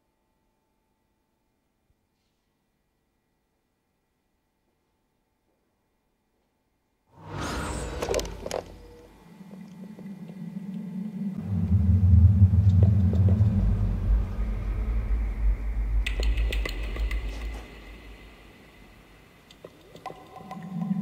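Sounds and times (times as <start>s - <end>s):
deep steady rumble: 7.8s - 19.6s.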